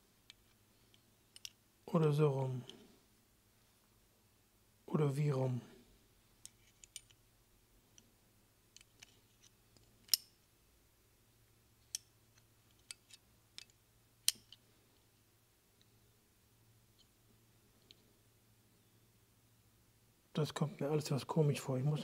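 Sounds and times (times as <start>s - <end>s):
small metal parts clicking: 0.3s - 1.6s, 6.4s - 7.2s, 8.7s - 10.3s.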